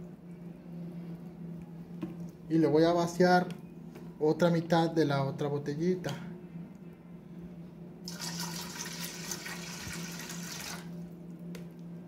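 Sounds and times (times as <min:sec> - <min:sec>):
water pouring into metal pot: 0:08.1 - 0:10.8.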